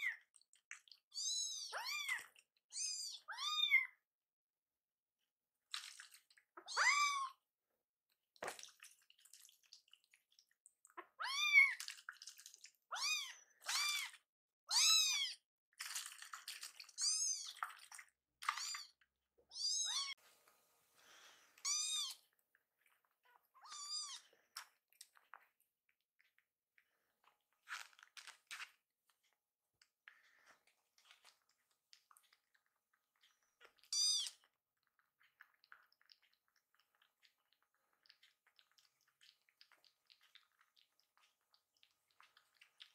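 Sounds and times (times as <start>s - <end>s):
kittens meowing: 6.6s - 7.4s, 23.6s - 24.2s.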